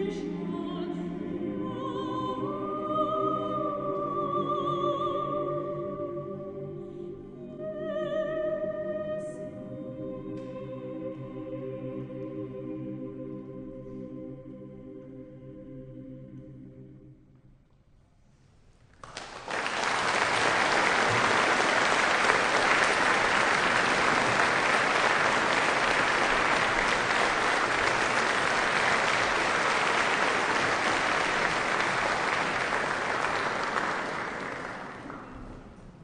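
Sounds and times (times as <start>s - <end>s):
audience applauding: 19.0s - 35.4s.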